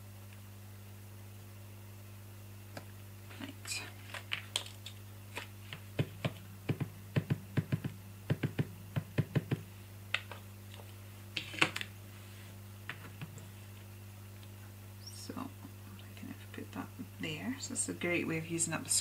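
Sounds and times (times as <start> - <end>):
ink pad tapping on stamp: 6.0 - 9.6.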